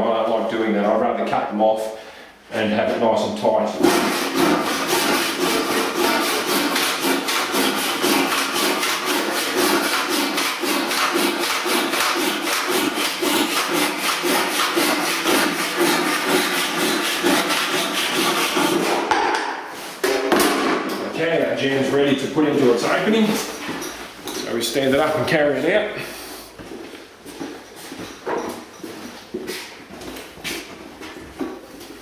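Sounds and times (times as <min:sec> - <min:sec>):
handsaw cutting timber: 0:03.8 - 0:19.1.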